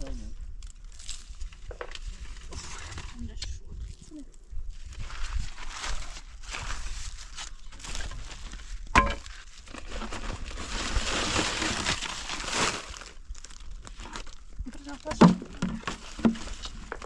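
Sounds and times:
plastic sheeting crinkling: 4.7s - 17.0s.

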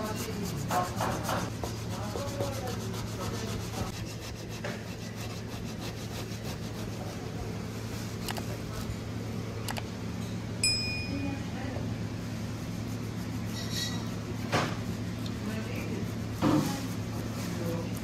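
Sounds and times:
potato scraping on box grater: 0.0s - 7.2s
steady low hum: 0.0s - 18.0s.

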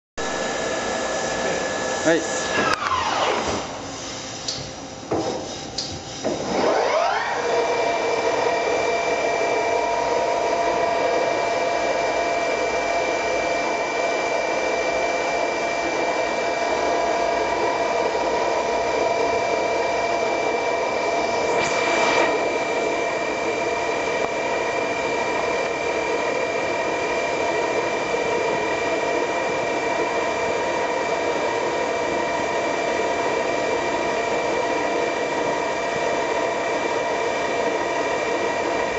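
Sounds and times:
machine spindle whine: 0.2s - 3.8s, 6.2s - 38.9s.

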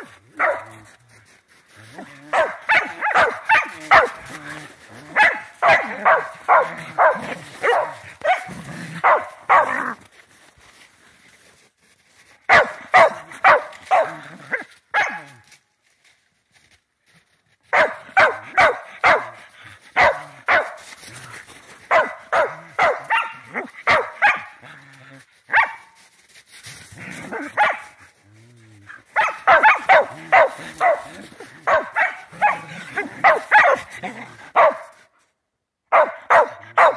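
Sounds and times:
dog barking: 0.0s - 0.8s, 2.3s - 4.2s, 5.1s - 9.9s, 12.5s - 14.2s, 14.9s - 15.3s, 17.7s - 19.4s, 20.0s - 20.8s, 21.9s - 24.6s, 25.5s - 25.9s, 27.3s - 27.9s, 29.2s - 33.9s, 34.6s - 35.0s, 35.9s - 36.9s.

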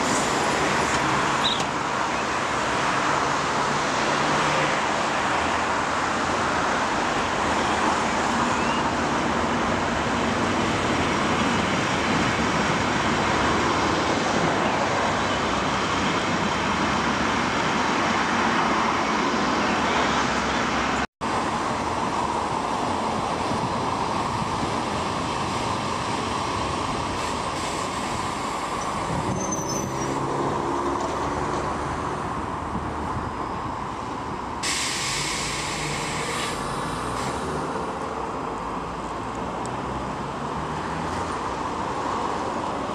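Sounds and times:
train rumble and hiss: 0.0s - 1.1s, 21.9s - 29.3s, 34.6s - 37.6s.

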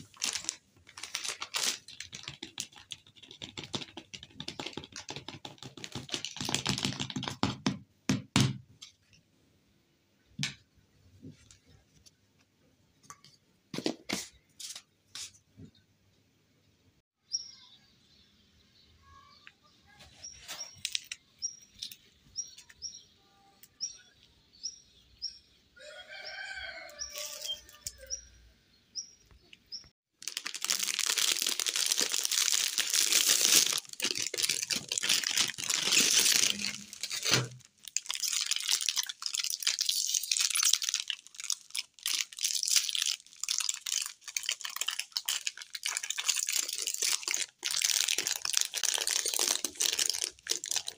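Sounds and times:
foil wrapper crinkling: 0.0s - 7.1s, 30.2s - 50.9s
small bird chirping: 17.2s - 29.9s.

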